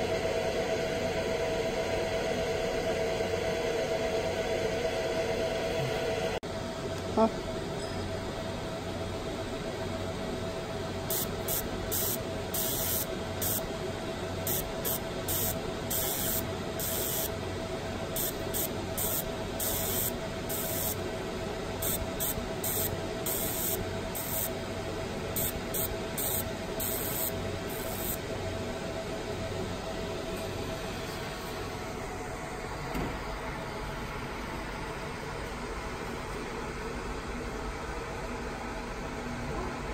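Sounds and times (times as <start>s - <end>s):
machine humming: 0.0s - 6.4s, 8.5s - 34.8s
laser hissing bursts: 11.1s - 13.6s, 14.5s - 17.3s, 18.2s - 21.0s, 21.8s - 24.5s, 25.4s - 28.2s.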